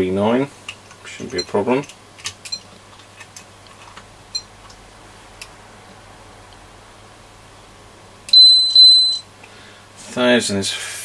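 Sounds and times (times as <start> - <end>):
loud high-pitched meter beep: 8.3 - 9.3.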